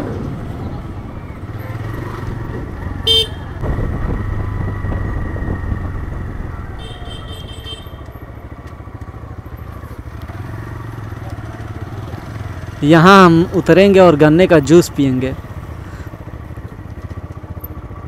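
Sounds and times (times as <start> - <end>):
motorcycle running: 0.0 - 18.0
vehicle horn blast: 3.0 - 3.6, 6.7 - 8.1
high-pitched horn beeping: 3.1 - 3.5, 6.7 - 8.1.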